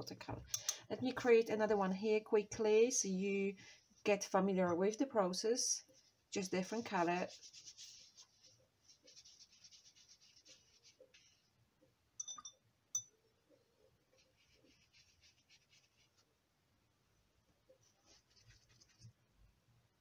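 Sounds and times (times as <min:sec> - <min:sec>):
watercolour brush strokes on paper: 0:05.8 - 0:11.6, 0:14.0 - 0:16.4, 0:17.7 - 0:19.2.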